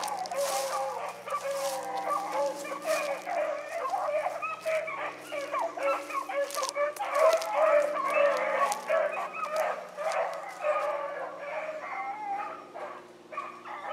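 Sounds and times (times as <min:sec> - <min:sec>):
hounds baying: 0:00.0 - 0:13.9.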